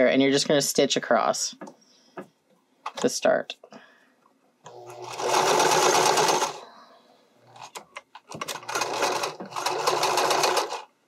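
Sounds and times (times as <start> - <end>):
sewing machine stitching: 4.7 - 6.6, 7.6 - 10.9.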